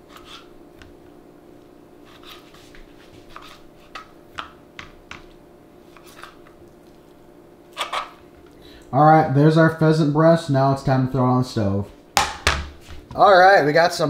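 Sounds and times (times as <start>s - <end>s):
steady low hum: 0.0s - 14.0s
knife chopping on plastic board: 3.3s - 5.3s.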